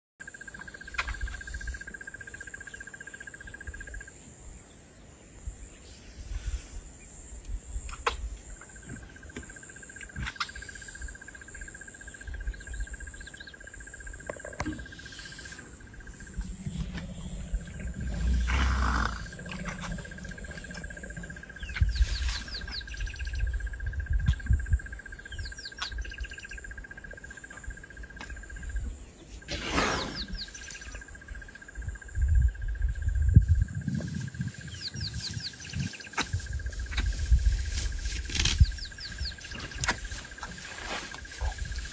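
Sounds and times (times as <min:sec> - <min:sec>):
high insect trill: 0:00.2 - 0:04.7, 0:05.4 - 0:41.9
birds chirping: 0:11.6 - 0:31.8, 0:34.0 - 0:41.9
low rumbles and rustles: 0:15.7 - 0:24.8.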